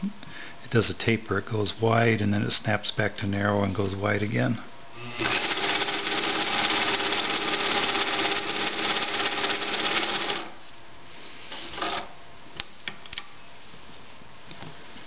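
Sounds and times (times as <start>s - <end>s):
sewing machine running fast: 5.2s - 10.6s.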